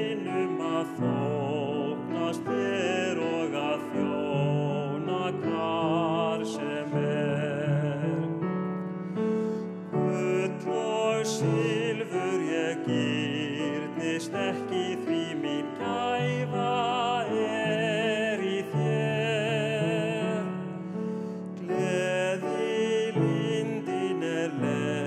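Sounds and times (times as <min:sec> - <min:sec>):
man singing with vibrato: 0:00.0 - 0:08.5, 0:09.9 - 0:20.8, 0:21.6 - 0:25.0.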